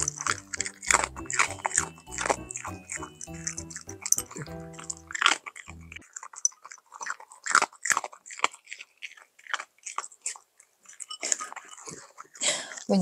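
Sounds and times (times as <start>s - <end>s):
soft background music: 0.0s - 6.0s
dog crunching food: 0.0s - 13.0s.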